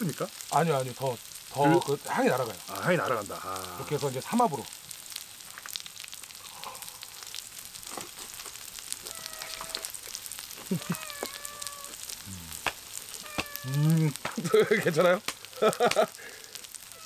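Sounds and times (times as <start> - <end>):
meat sizzling on a griddle: 0.0 - 17.0.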